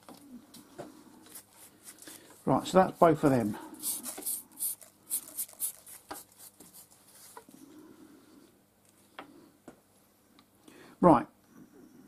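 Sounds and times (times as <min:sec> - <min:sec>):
brush sweeping metal swarf: 0:03.8 - 0:06.3.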